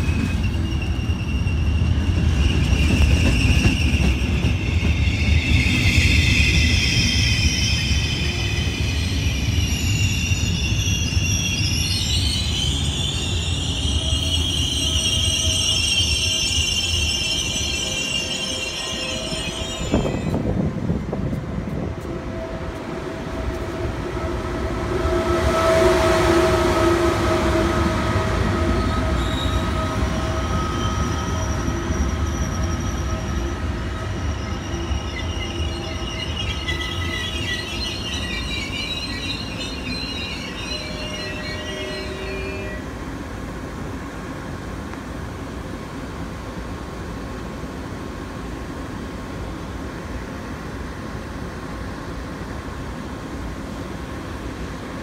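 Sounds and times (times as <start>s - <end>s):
train wheel squeal: 0.0s - 20.7s, 23.4s - 43.0s.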